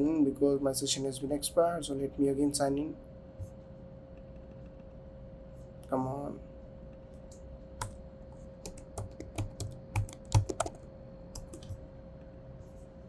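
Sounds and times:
keyboard typing: 0:08.6 - 0:10.8, 0:11.4 - 0:11.8.

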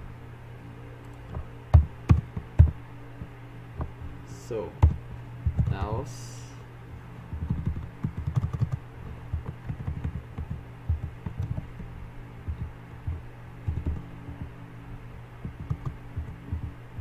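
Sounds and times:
steady low hum: 0:00.0 - 0:17.0
computer keyboard typing: 0:01.7 - 0:02.7, 0:04.8 - 0:05.8, 0:07.3 - 0:11.9, 0:12.5 - 0:14.5, 0:15.4 - 0:17.0.

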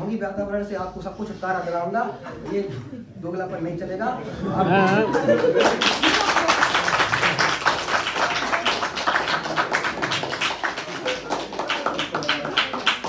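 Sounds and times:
audience applause: 0:05.1 - 0:13.0.

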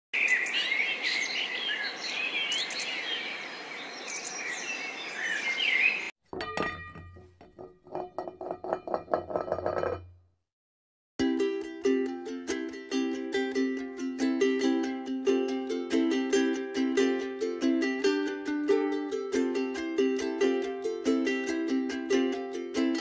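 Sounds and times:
birds chirping and twittering: 0:00.2 - 0:06.1.

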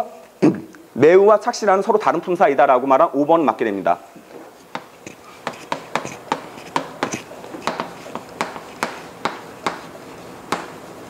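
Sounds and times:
chalk tapping on chalkboard: 0:04.7 - 0:10.8.

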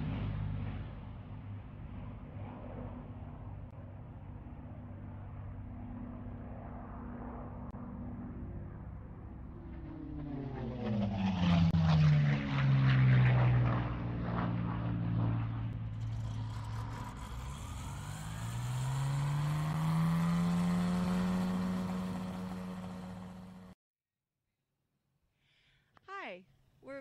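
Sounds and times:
light airplane piston engine: 0:00.0 - 0:23.8.

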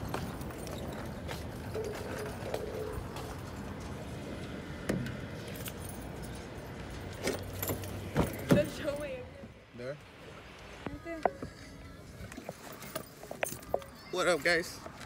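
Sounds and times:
keys jangling: 0:05.4 - 0:08.0.

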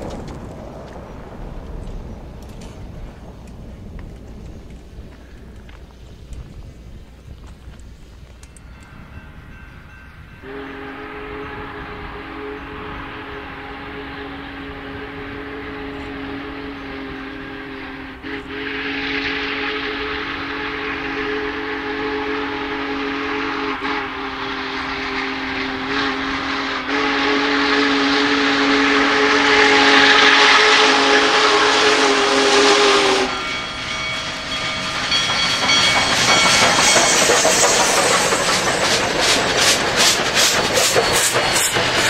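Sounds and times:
train wheels clattering on rails: 0:00.0 - 0:10.8, 0:30.0 - 0:42.0
steam locomotive whistle: 0:10.3 - 0:42.0.

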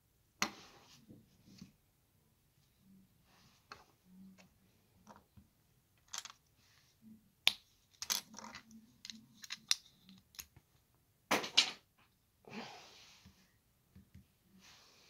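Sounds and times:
plastic bricks clicking: 0:06.0 - 0:06.4, 0:07.5 - 0:10.5.

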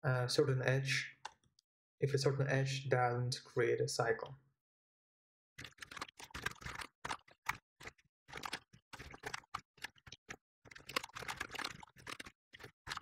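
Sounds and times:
fast keyboard typing: 0:05.6 - 0:13.0.

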